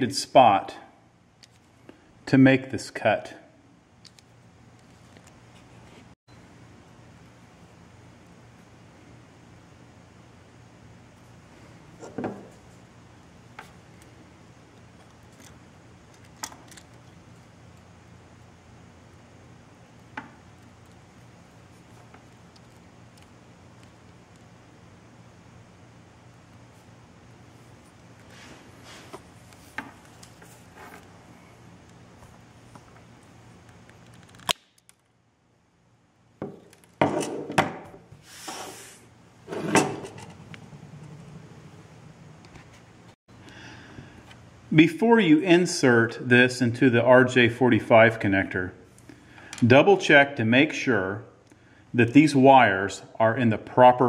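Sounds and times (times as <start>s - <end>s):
tool clunks and rattles: 12.0s - 12.5s, 39.5s - 40.5s.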